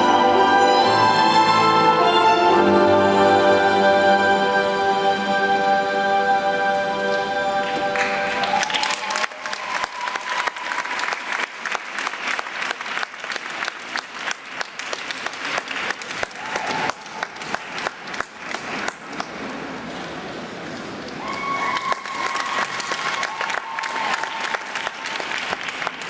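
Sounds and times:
audience applauding: 7.6 - 19.7, 21.2 - 26.0.

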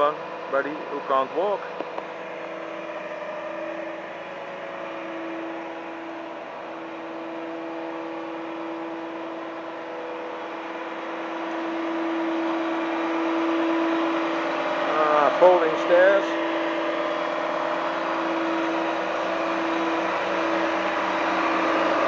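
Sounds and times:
diesel engine humming: 0.0 - 22.0
hydraulic whine: 0.0 - 22.0.

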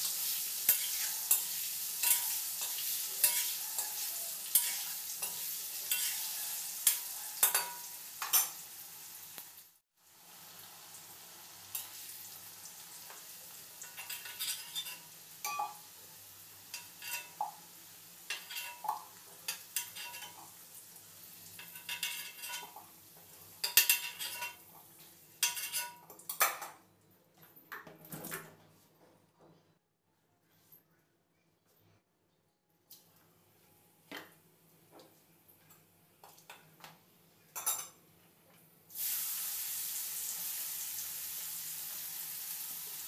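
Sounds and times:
oil sizzling: 0.0 - 26.6, 38.9 - 43.0
metal spoon scraping iron pan: 0.7 - 8.5, 16.7 - 17.4, 21.6 - 22.8, 23.6 - 24.6.

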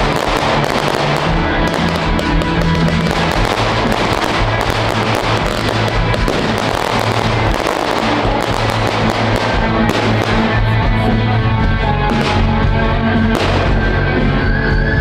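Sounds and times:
firework shells bursting and crackling: 0.0 - 10.8
loud music with bass: 0.0 - 15.0.

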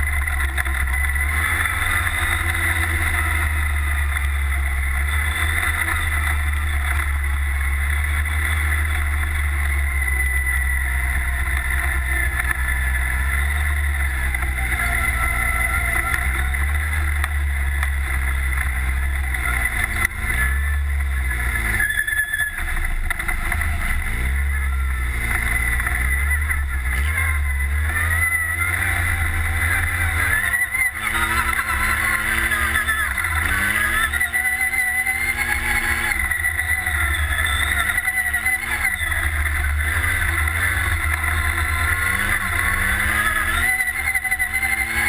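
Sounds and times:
buggy engine revving: 0.0 - 45.0.

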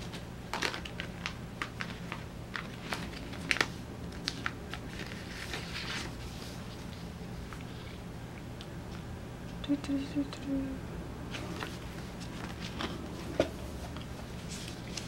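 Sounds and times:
paper sticker sheets crinkling: 0.0 - 8.0, 11.3 - 15.0
faint low hum: 0.0 - 15.0.

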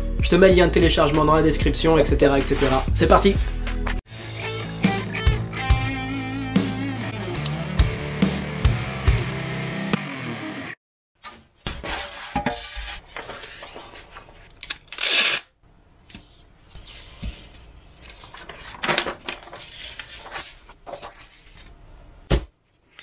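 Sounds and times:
paper rustling and scraping on foam: 11.8 - 15.4, 16.2 - 22.0.

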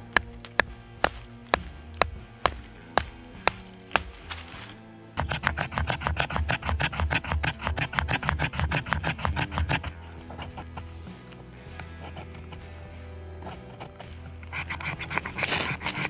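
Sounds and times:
knife scraping in fast strokes: 5.2 - 10.8, 13.6 - 16.0.

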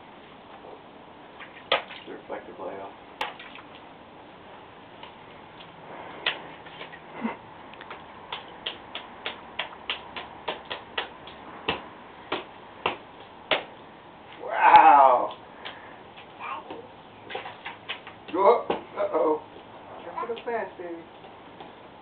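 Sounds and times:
person exclaiming: 14.4 - 15.4.

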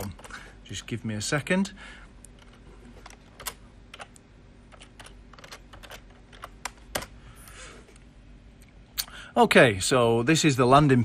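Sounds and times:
computer keyboard key clicks: 2.4 - 7.1.

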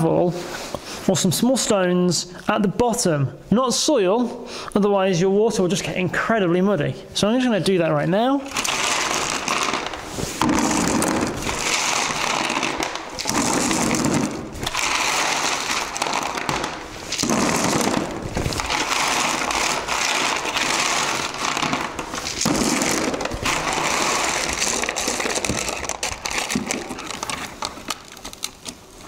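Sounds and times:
pebbles poured into plastic box: 8.5 - 28.5.

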